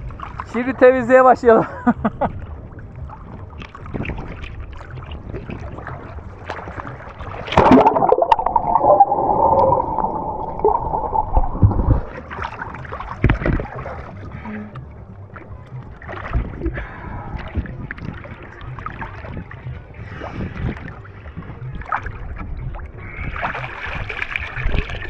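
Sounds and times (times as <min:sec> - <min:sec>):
water sloshing against camera: 0:03.1 - 0:16.8
water splash: 0:05.6 - 0:14.0
muffled underwater hum: 0:07.5 - 0:12.2.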